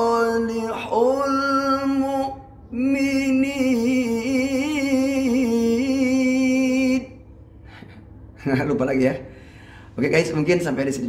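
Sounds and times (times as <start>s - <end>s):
man reciting melodically: 0.0s - 7.3s.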